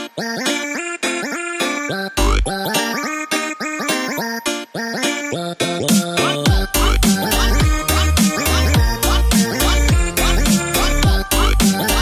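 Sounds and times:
background music with beat: 0.0s - 12.0s
deep bass line: 6.5s - 12.0s.

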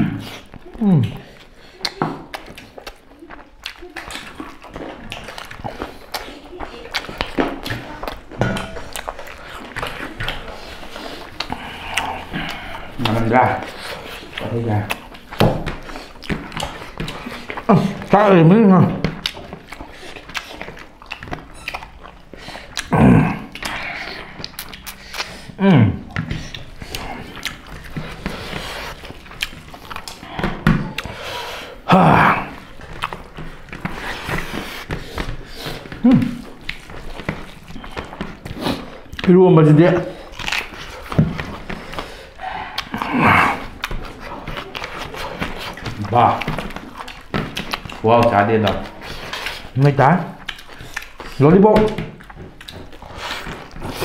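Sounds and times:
wet clicks and smacks: 0.0s - 31.2s, 32.4s - 54.0s
chewing and biting: 0.0s - 54.0s
fingers mixing rice on plates: 0.0s - 54.0s.

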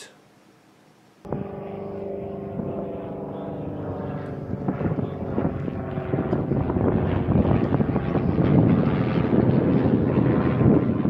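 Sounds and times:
steady engine drone: 1.2s - 11.0s
wind buffeting microphone: 2.5s - 11.0s.

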